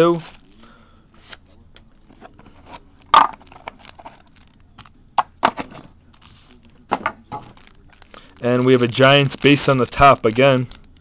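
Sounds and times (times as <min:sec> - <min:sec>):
foil wrapper crinkling: 0:06.1 - 0:11.0.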